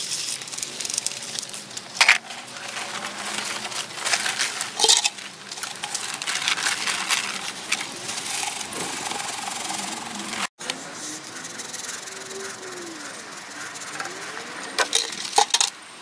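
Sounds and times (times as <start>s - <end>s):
seed pouring into plastic bucket: 0.0s - 10.4s
tarp rustling: 0.0s - 10.5s.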